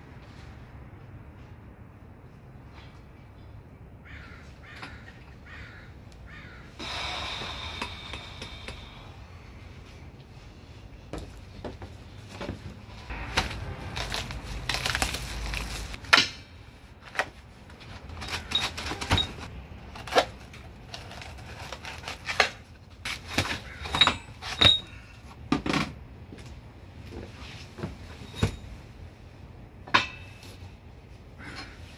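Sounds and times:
cardboard rustling: 11.6 - 16.0.

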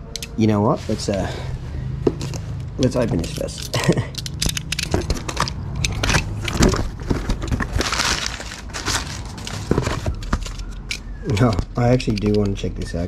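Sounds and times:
packing paper rustling: 2.2 - 10.8
utility knife slitting tape: 3.1 - 6.5.

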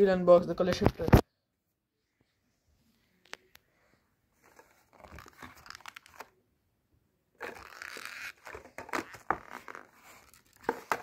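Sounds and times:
plastic blister pack crinkling and tearing: 4.9 - 6.3, 7.4 - 11.0.

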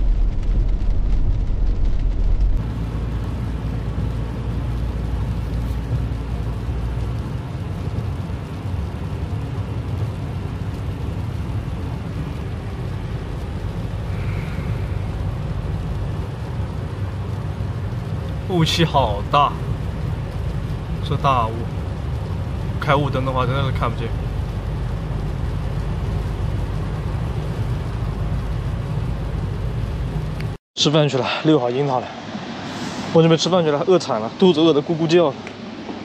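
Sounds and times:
tyre noise on wet road: 0.0 - 30.6
road and engine rumble: 0.0 - 36.0.

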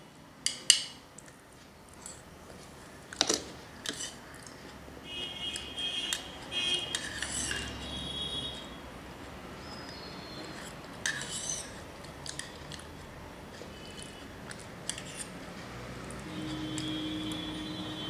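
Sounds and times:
spoon scraping with metal squeal: 6.8 - 8.6, 9.7 - 11.8, 13.7 - 14.3, 16.2 - 18.0.

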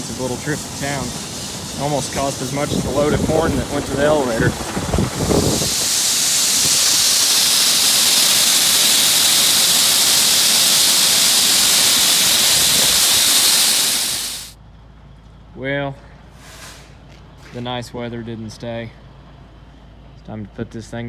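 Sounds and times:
grain pouring down metal hopper: 0.0 - 14.5.

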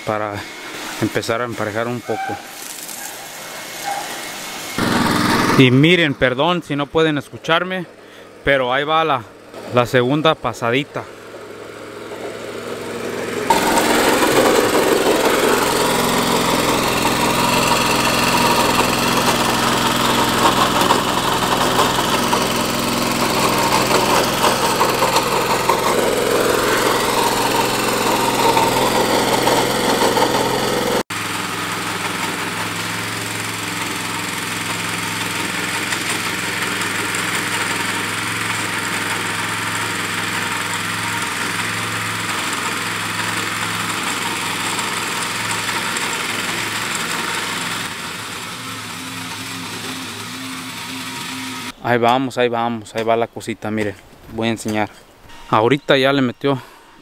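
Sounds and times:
tiller engine running: 0.0 - 6.5, 7.8 - 51.8
tines churning soil: 0.0 - 52.3.

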